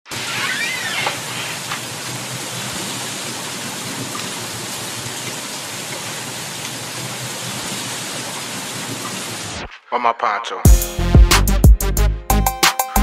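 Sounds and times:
steady rain falling: 0.1 - 9.6.

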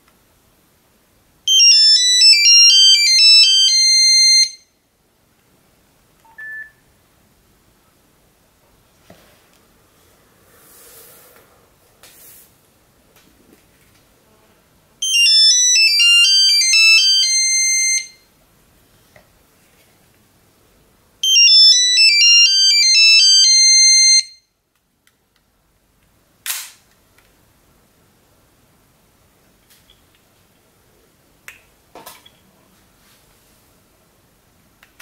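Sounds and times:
beeping phone ringtone: 1.5 - 4.7, 15.0 - 18.2, 21.2 - 24.4.

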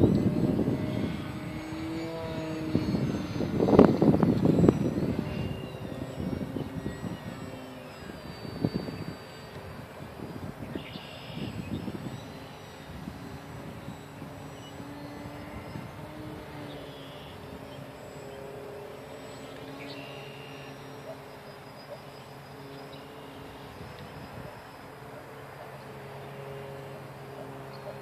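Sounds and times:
wind rumbling on microphone: 0.0 - 20.0, 23.4 - 25.2
model plane motor humming: 0.0 - 28.0.

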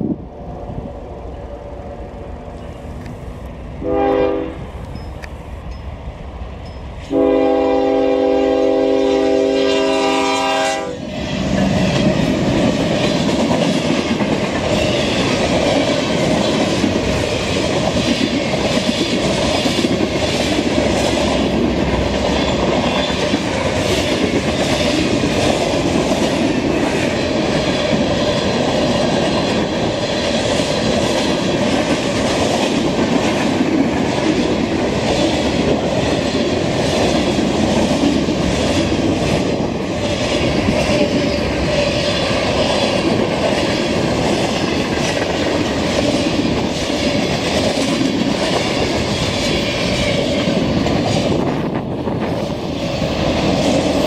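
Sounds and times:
locomotive air horn: 3.8 - 4.7, 7.1 - 11.0
train wheels clacking over rail joints: 11.3 - 54.0.

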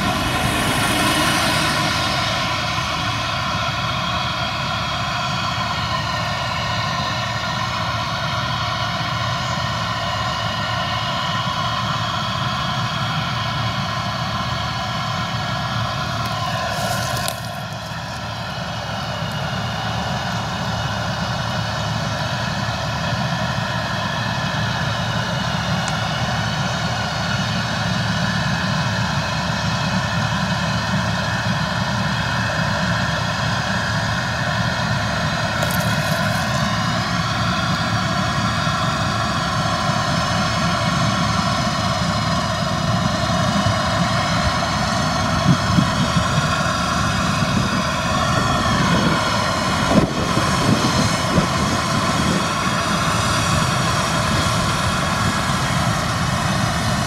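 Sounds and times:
tractor engine droning: 0.0 - 57.0
grain auger unloading: 16.1 - 19.6, 35.3 - 39.0.

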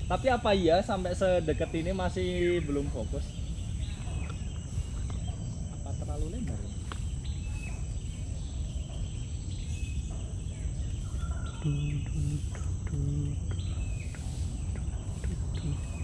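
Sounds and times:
high-pitched insect drone: 0.0 - 16.0
low hummed notes: 0.0 - 16.0.

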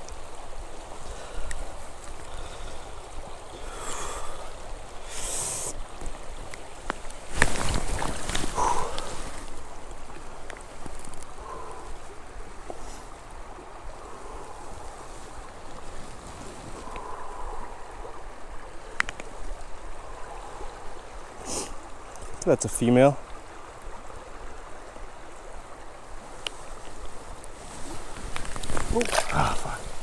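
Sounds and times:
creek water running over stones: 0.0 - 30.0
water splashing: 0.9 - 11.9, 27.7 - 30.0.

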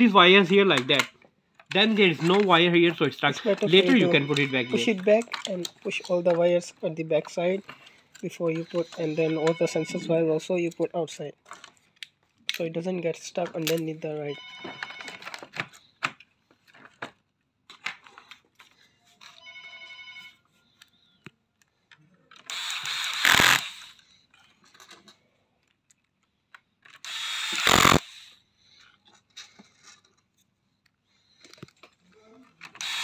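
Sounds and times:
small handling clicks: 4.4 - 6.6
electric screwdriver driving screws: 22.5 - 24.0, 27.0 - 28.4, 32.8 - 33.0.

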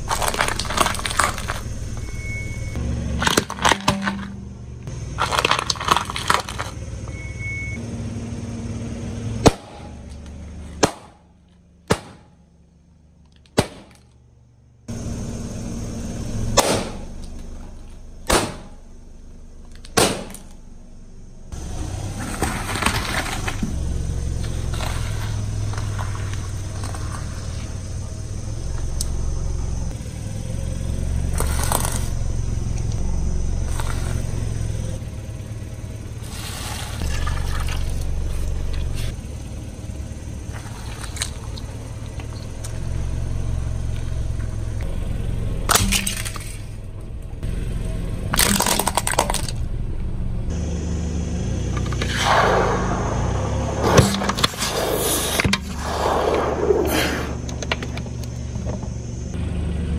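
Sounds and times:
objects crunching under tyre: 0.0 - 7.3, 21.6 - 28.1, 31.2 - 33.0, 40.4 - 42.8, 45.6 - 47.4, 48.2 - 49.7
low car rumble: 0.0 - 59.9
sharp cracks: 9.4 - 11.3, 11.9 - 12.4, 13.4 - 14.2, 16.6 - 17.5, 18.2 - 18.8, 19.7 - 20.6, 48.3 - 49.6.

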